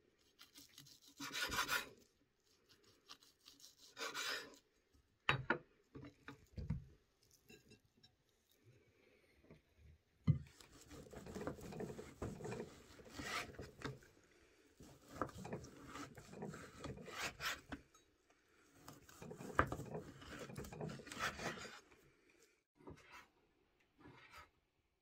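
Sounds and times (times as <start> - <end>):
knife sawing through bacon: 0.4 - 2.1, 3.1 - 4.6, 10.8 - 13.7, 19.1 - 21.8.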